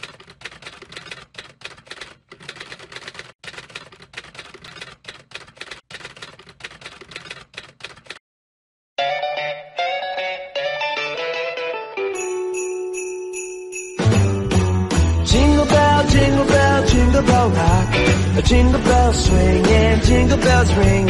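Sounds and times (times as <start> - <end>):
typewriter keys clacking: 0.0 - 8.2
music: 9.0 - 13.1, 13.7 - 21.0.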